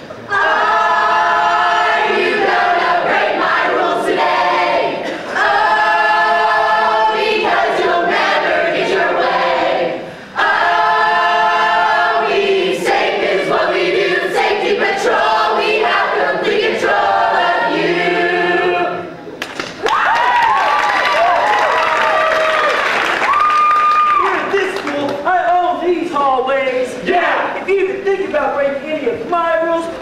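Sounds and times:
group of voices singing: 0.0 - 19.2.

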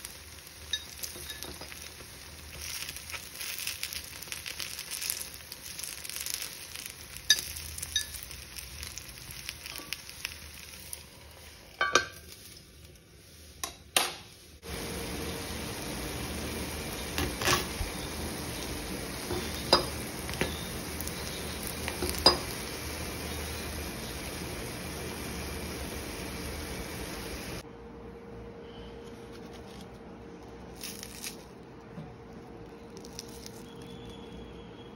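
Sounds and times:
dumplings sizzling in oil: 0.0 - 27.7
metal tool clinking on pan: 0.7 - 1.8, 21.9 - 22.5.

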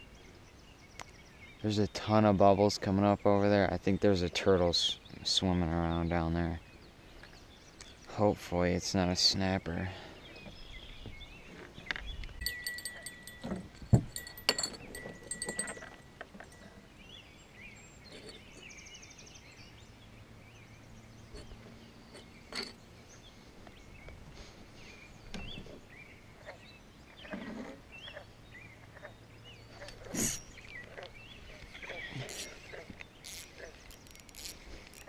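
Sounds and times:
fishing gear clicking and knocking: 12.4 - 16.7, 32.1 - 35.0
faint bird chirps: 24.8 - 35.0.

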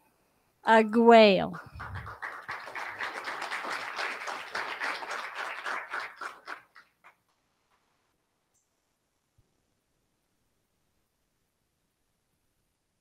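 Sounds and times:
audience applause: 1.6 - 7.0.

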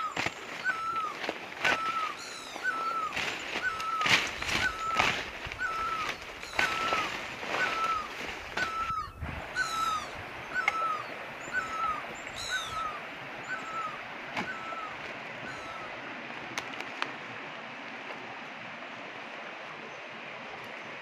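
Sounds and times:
higher falling animal call: 0.0 - 16.0
leaves and undergrowth rustling: 0.0 - 21.0.

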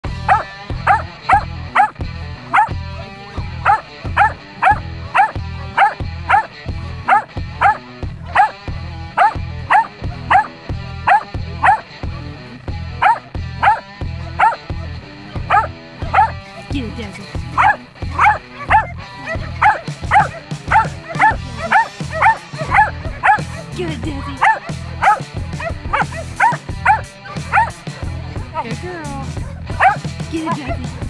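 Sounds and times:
dog barking in high yips: 0.3 - 1.9, 2.5 - 2.7, 3.7 - 6.5, 7.1 - 8.5, 9.2 - 10.5, 11.1 - 11.8, 13.0 - 13.8, 14.4 - 14.6, 15.5 - 16.3, 17.6 - 23.5, 24.4 - 27.7, 29.8 - 30.0.

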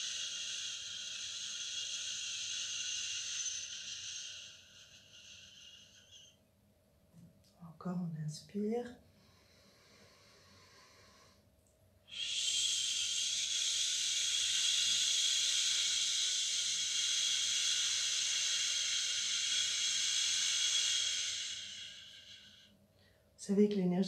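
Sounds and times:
woman exhaling shhh: 0.0 - 6.3, 12.1 - 22.7
faint in-breath: 9.1 - 11.5, 12.1 - 23.4.

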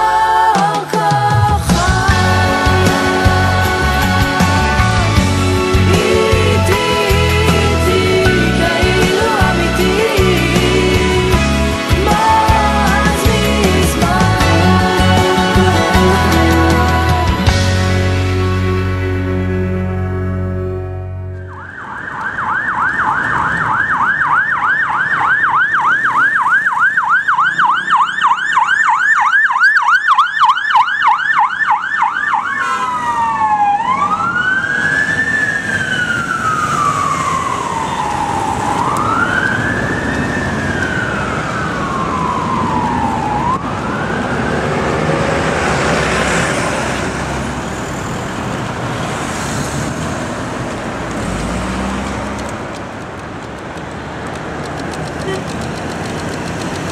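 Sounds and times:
ambulance siren: 19.7 - 48.8.

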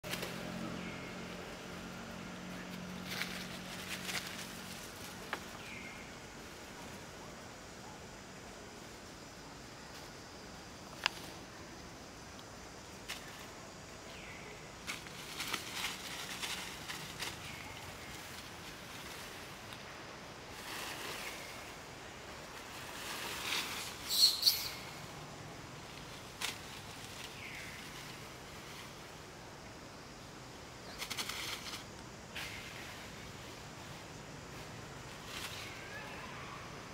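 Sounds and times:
dry leaves and twigs rustling: 0.0 - 7.7, 8.8 - 36.9
falling chirps: 23.8 - 25.1.

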